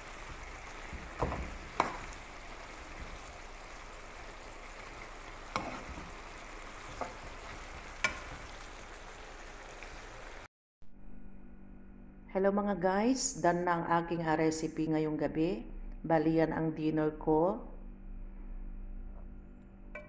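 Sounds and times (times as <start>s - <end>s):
food sizzling in a pan: 0.0s - 10.5s
spatula knocking against pan: 0.8s - 2.2s.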